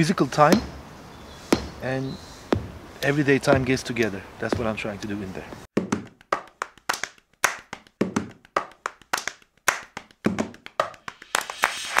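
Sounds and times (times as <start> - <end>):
clap-like percussion hits: 6.0 - 12.0.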